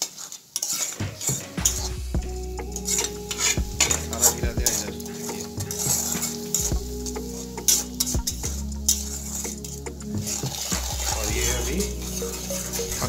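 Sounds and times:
metal spatula scraping a pan: 0.0 - 13.0
oil sizzling: 0.0 - 13.0.

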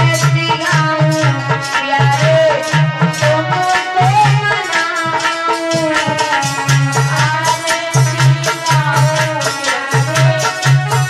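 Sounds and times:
repeating drum beat: 0.0 - 11.0.

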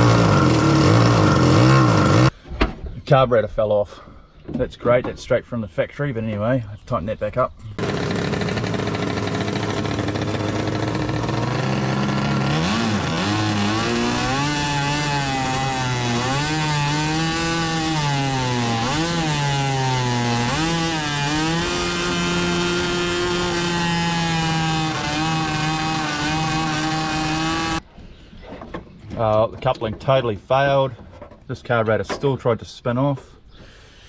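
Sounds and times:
two-stroke engine revving: 0.0 - 2.3, 7.8 - 27.8.

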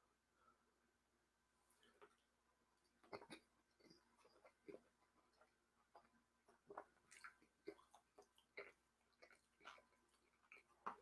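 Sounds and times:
wet chewing and lip smacks: 2.8 - 11.0.

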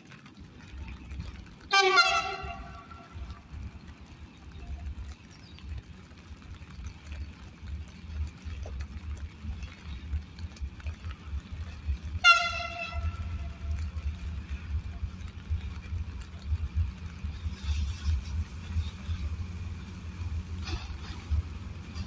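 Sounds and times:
steady low rumble: 0.3 - 22.0
locomotive horn blast: 1.7 - 3.3, 12.2 - 13.8.

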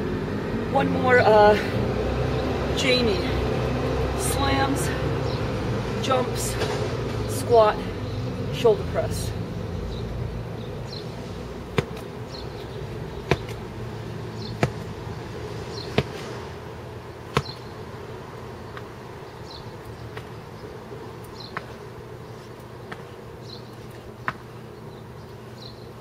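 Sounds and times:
medicine ball thudding on ground: 11.7 - 12.1, 13.1 - 13.7, 14.4 - 15.0, 15.7 - 16.4, 17.3 - 17.7, 20.1 - 20.4, 21.5 - 21.8.

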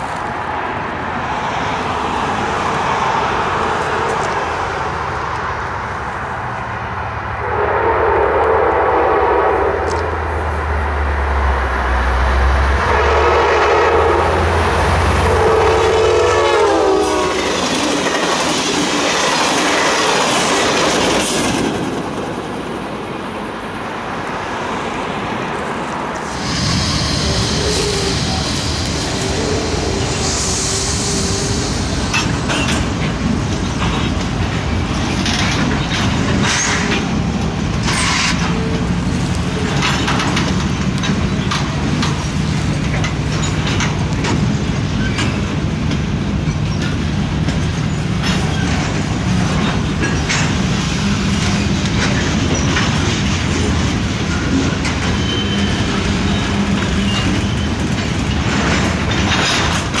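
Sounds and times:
locomotive engines droning: 0.0 - 60.0
rumble of train wheels: 0.0 - 60.0
freight cars clicking and clanking: 17.3 - 23.5, 26.1 - 60.0.

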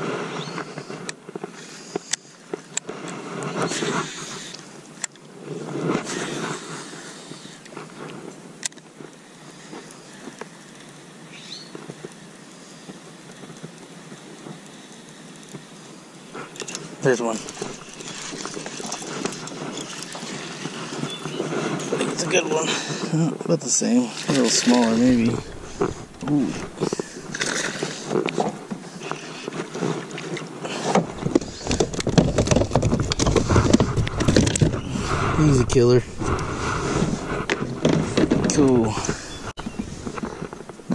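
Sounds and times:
steady outdoor hiss: 0.0 - 40.9
knocks scrapes and rustling: 16.4 - 22.4, 24.1 - 40.9
low rumble: 24.6 - 27.5, 31.1 - 40.8.

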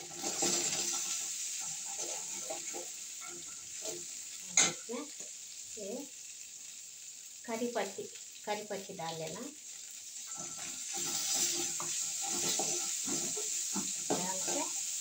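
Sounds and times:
ladle scraping a pan: 0.0 - 4.0, 10.2 - 14.8
spices sizzling in hot oil: 0.0 - 15.0.

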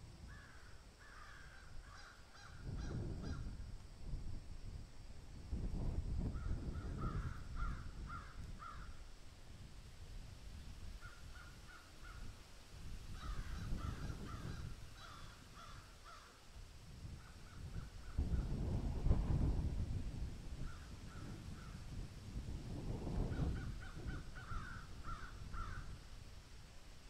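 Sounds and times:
crows cawing: 0.3 - 3.4, 6.8 - 9.0, 13.2 - 16.4, 23.4 - 26.0.

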